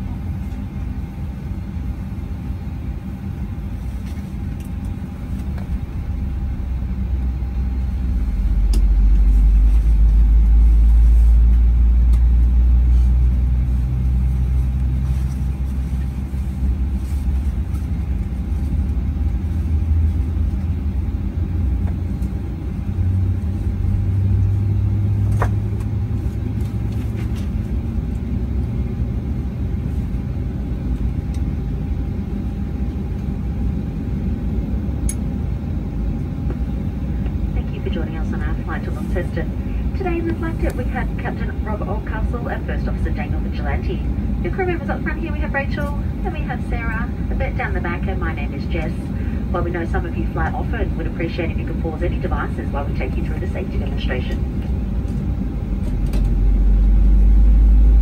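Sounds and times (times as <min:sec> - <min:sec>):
faint steady hum: 0:00.0 - 0:58.0
jet engine rumble: 0:00.0 - 0:58.0
click: 0:35.0 - 0:35.2.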